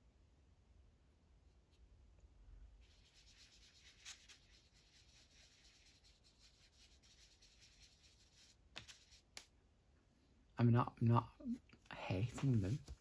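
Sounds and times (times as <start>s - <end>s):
sponge rubbing on paper: 2.8s - 9.3s.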